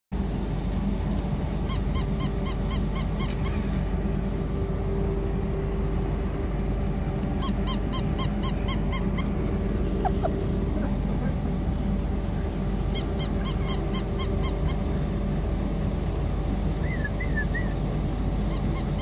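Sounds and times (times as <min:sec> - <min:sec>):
steady mechanical hum: 0:00.1 - 0:19.0
toy dog electronic yips: 0:01.7 - 0:03.7, 0:07.4 - 0:09.3, 0:13.0 - 0:14.9, 0:18.5 - 0:19.0.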